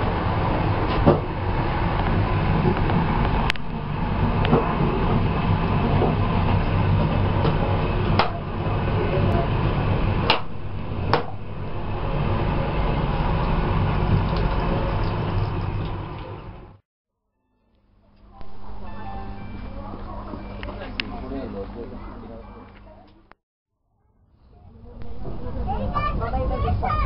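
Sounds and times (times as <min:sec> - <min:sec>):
train low rumble: 0:00.0 - 0:16.8, 0:17.7 - 0:23.3, 0:24.3 - 0:27.0.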